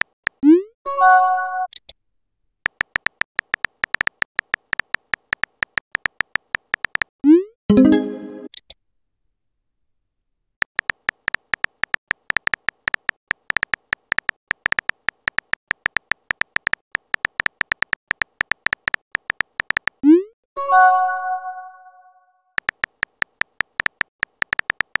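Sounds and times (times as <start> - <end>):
high electronic keyboard ticks: 2.6 - 7.1, 10.6 - 20.0, 22.6 - 25.0.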